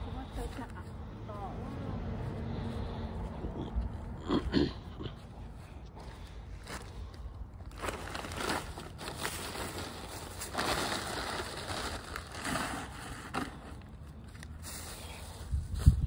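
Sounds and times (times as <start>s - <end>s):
plastic bag rustling: 7.6s - 16.0s.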